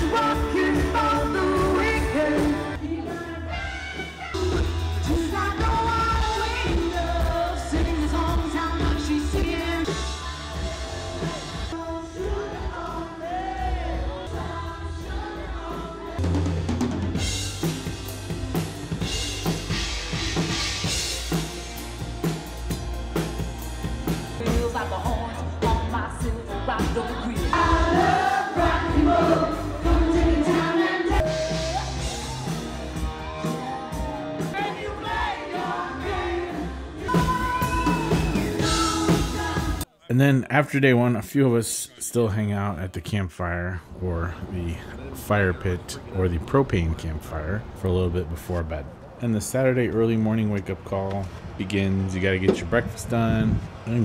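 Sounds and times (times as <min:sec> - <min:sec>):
drum kit beat: 0:00.0 - 0:13.6, 0:14.3 - 0:39.9
person singing: 0:00.0 - 0:16.6, 0:24.4 - 0:32.6, 0:33.4 - 0:40.1.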